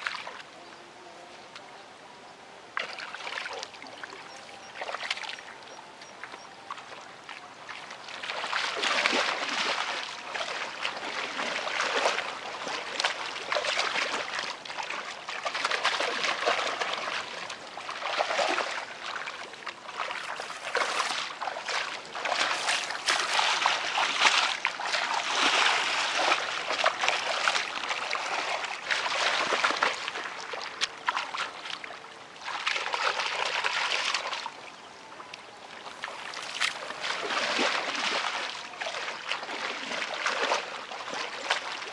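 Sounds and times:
water splashing: 0:00.0 - 0:00.5, 0:02.8 - 0:41.9
hands squelching in wet mud: 0:08.2 - 0:31.8.

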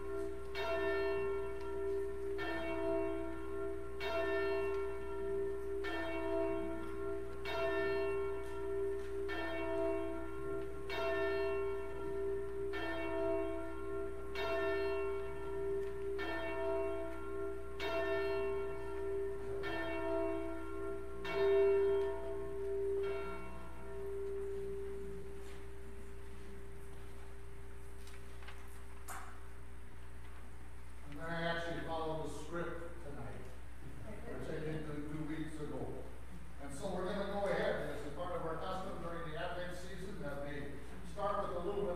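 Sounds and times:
church bell tolling: 0:00.0 - 0:27.7, 0:36.7 - 0:41.9.

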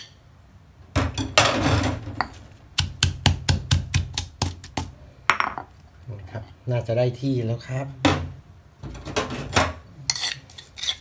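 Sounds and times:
pestle pounding in mortar: 0:02.3 - 0:05.0.

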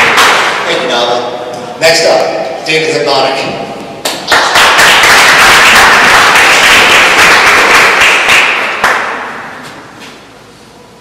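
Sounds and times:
audience applauding: 0:00.0 - 0:00.7, 0:04.0 - 0:09.4.

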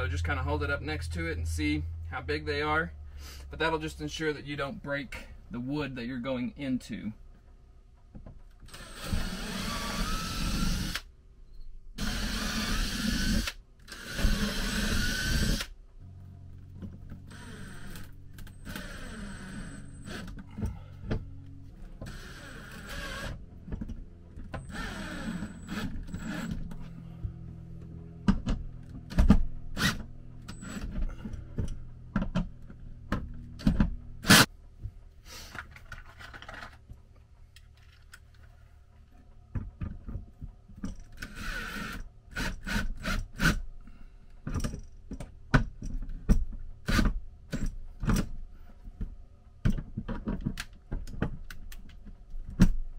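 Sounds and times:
cordless drill driving screws: 0:08.7 - 0:11.1, 0:12.0 - 0:15.7, 0:17.3 - 0:20.4, 0:22.0 - 0:23.4, 0:24.6 - 0:26.8, 0:41.2 - 0:43.6.

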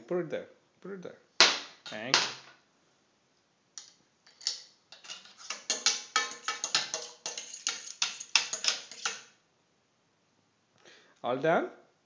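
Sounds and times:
utensil clinking against frying pan: 0:05.0 - 0:09.3.

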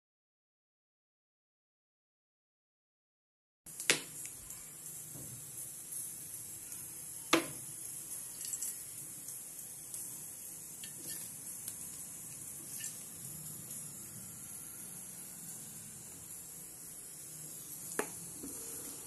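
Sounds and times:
oil pouring into metal pot: 0:07.9 - 0:16.1.

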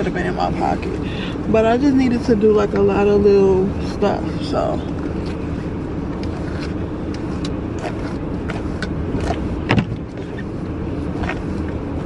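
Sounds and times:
car engine rumble inside cabin: 0:00.0 - 0:12.0
dull thump: 0:09.6 - 0:10.1.

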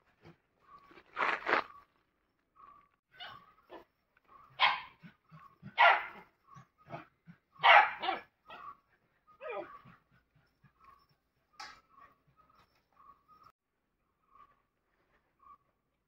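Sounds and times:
dog yelping: 0:03.1 - 0:11.0
dog barking: 0:03.2 - 0:05.1, 0:05.7 - 0:06.3, 0:06.9 - 0:08.8.

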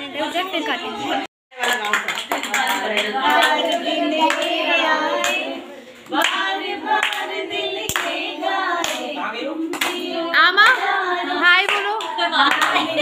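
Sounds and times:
people singing together: 0:01.0 - 0:13.0
rhythmic hand-clapping: 0:01.5 - 0:13.0.

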